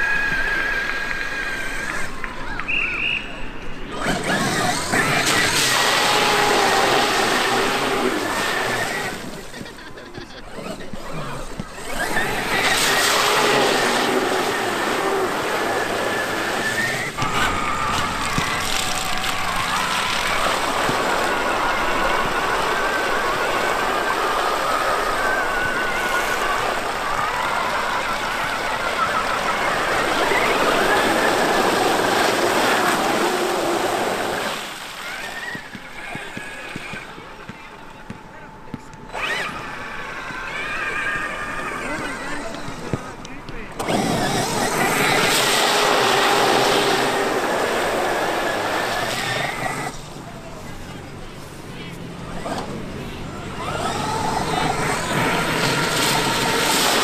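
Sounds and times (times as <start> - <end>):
electric motor whining: 3.9 - 9.8, 10.5 - 43.1, 43.7 - 57.0.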